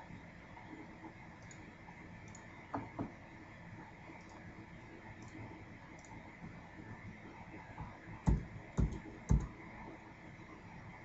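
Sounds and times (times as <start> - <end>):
keystrokes on a computer keyboard: 8.3 - 9.6.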